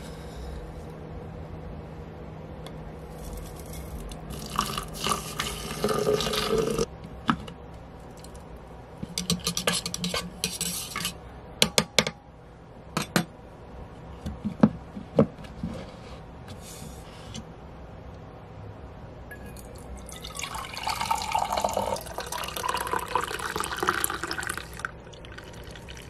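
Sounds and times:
water pouring into pot: 0:04.3 - 0:06.9, 0:19.6 - 0:26.0.

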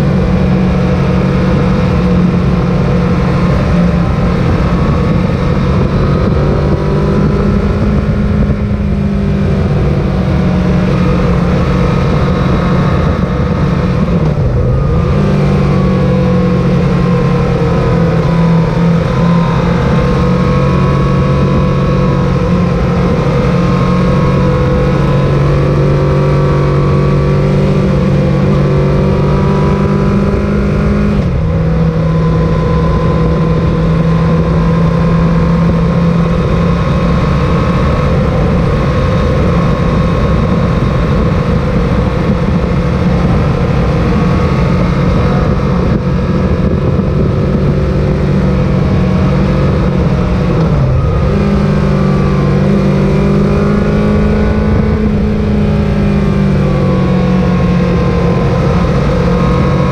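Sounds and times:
motorcycle engine running: 0:00.0 - 0:59.9
wind noise: 0:00.0 - 0:59.9.

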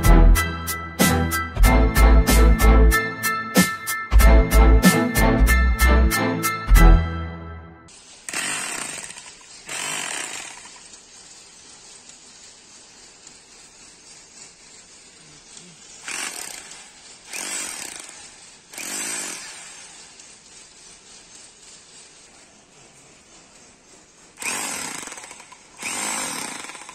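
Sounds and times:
rotary hammer chiselling ground: 0:07.9 - 0:26.9.

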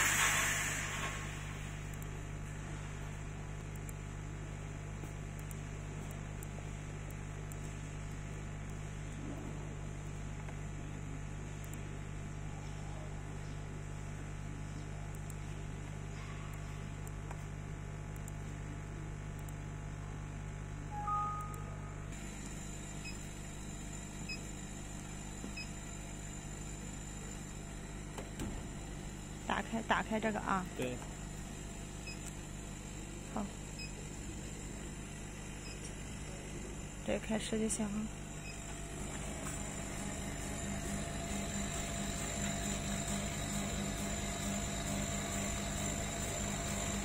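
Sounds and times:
hiss from running machinery: 0:00.0 - 0:01.8
low electrical hum: 0:00.0 - 0:47.0
faint high whine: 0:20.8 - 0:28.0
faint short beeps: 0:20.9 - 0:22.0.

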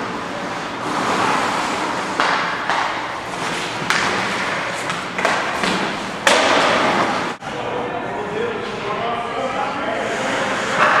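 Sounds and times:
skate blades scraping ice: 0:00.4 - 0:07.3.

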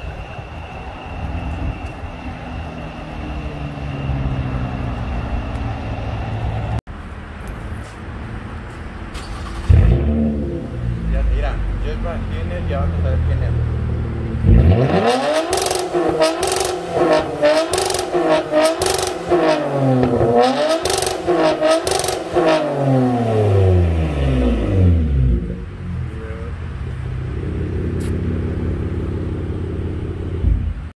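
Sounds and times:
car engine revving and idling: 0:09.3 - 0:30.9.

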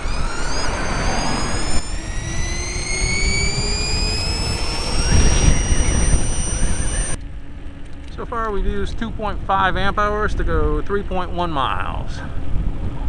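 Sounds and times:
electric motor whine rising: 0:00.0 - 0:08.1
low rumble: 0:00.0 - 0:13.0.

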